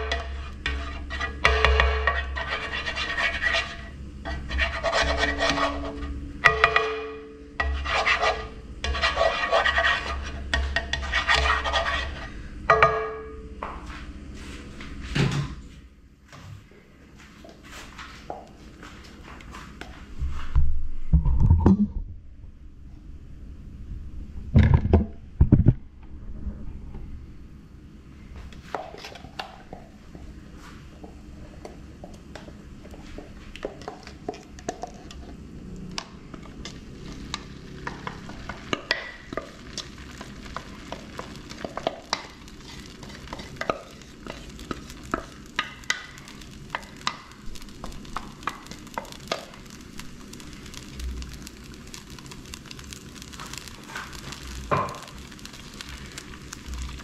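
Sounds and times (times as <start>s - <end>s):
wooden utensil scraping a pan: 0.0s - 6.6s, 7.6s - 12.4s, 36.6s - 49.8s
batter sizzling in a skillet: 0.0s - 13.5s, 28.6s - 57.0s.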